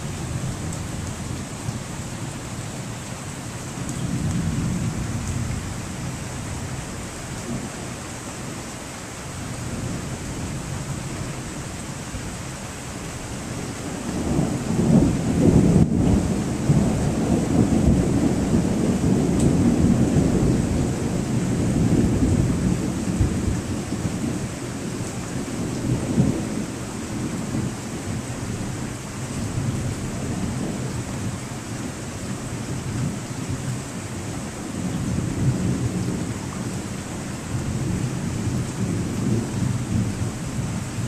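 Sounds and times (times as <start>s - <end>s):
rain hissing: 0.0s - 41.0s
thunder rumbling: 3.8s - 7.8s, 13.4s - 33.8s, 34.7s - 41.0s.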